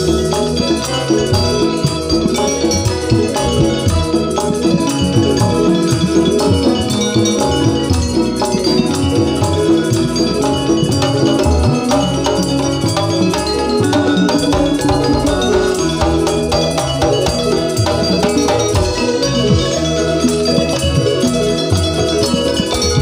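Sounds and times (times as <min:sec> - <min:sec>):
hand drums beating: 0:00.0 - 0:23.0.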